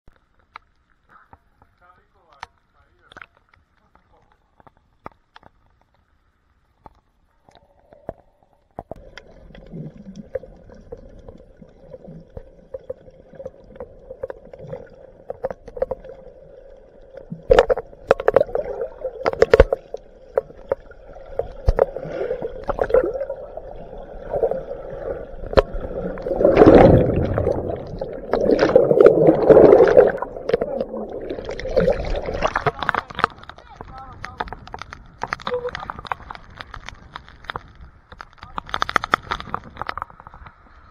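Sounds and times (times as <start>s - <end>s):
muffled underwater gurgling: 8.9s - 36.8s.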